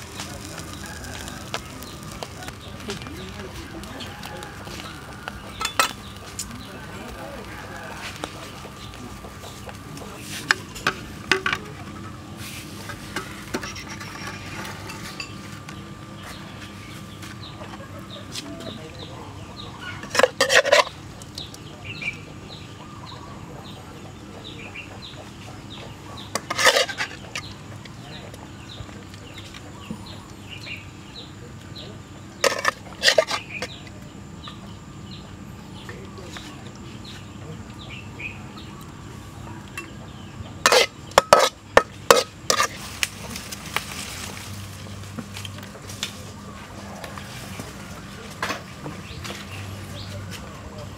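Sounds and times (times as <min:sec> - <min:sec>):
small birds chirping: 0:00.0 - 0:50.9
metal ladle scraping a wok: 0:12.4 - 0:15.4, 0:20.0 - 0:20.9, 0:26.3 - 0:27.3, 0:32.4 - 0:33.7, 0:40.6 - 0:43.0.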